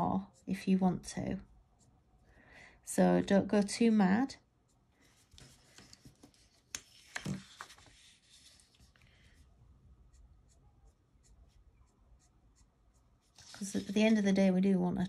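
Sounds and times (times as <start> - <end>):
marker strokes on paper: 4.6 - 14.6.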